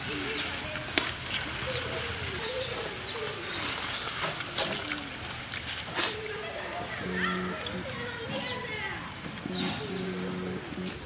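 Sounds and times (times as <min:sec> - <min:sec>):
low wavering bird calls: 0:00.0 - 0:11.0
steady hiss: 0:00.0 - 0:11.0.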